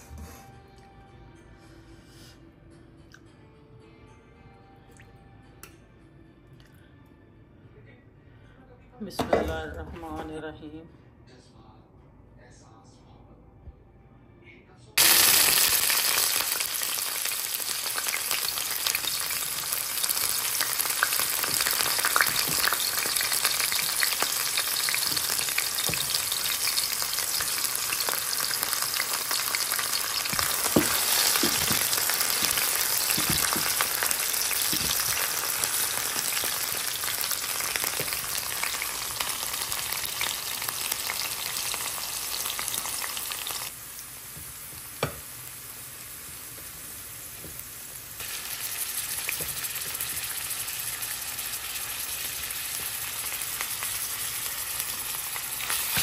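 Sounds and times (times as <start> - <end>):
onions sizzling in oil: 15.0 - 56.0
wooden spatula knocking and scraping: 30.3 - 33.9, 34.6 - 35.2.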